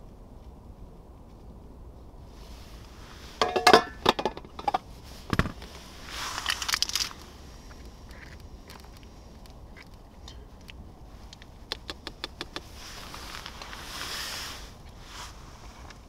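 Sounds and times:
rustling: 0:00.0 - 0:16.0
handling clicks and crinkles: 0:06.3 - 0:13.8.

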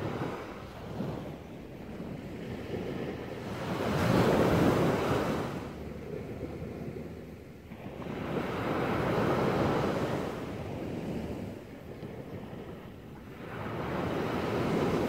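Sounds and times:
small waves breaking on beach: 0:00.0 - 0:15.0.

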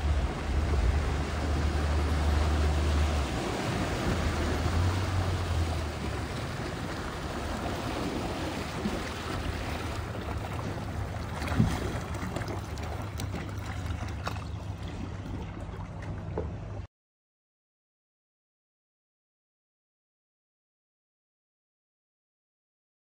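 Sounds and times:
outboard motor humming: 0:00.0 - 0:16.9
wind: 0:00.0 - 0:16.9.

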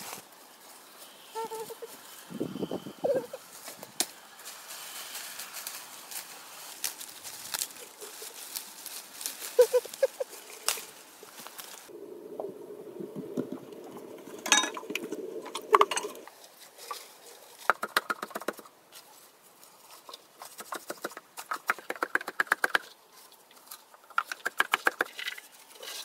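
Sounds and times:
low rushing noise: 0:11.9 - 0:16.3.

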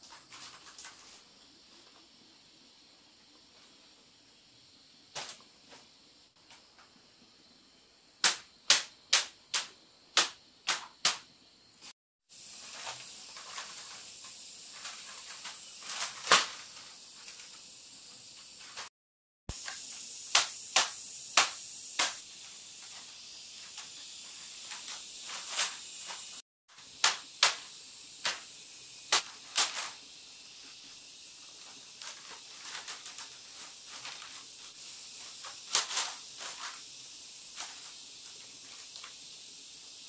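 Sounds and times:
steady high hiss: 0:00.0 - 0:18.9, 0:19.5 - 0:40.0
bamboo strips clacking: 0:08.2 - 0:11.3, 0:19.5 - 0:30.0, 0:31.5 - 0:36.9.

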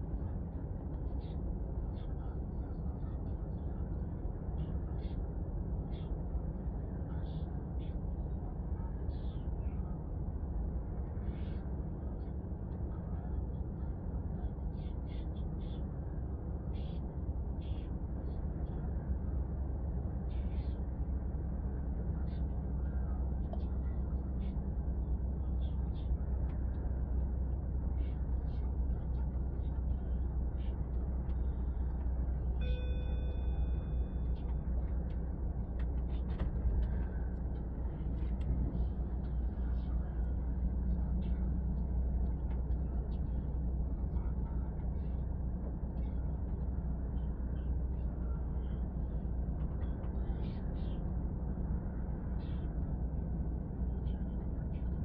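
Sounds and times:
car road and engine rumble: 0:10.1 - 0:55.0
bell-like chime: 0:32.6 - 0:33.9.

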